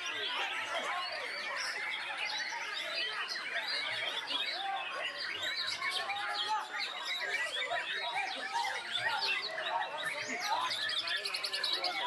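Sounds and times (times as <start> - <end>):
birds singing in chorus: 0.0 - 12.0.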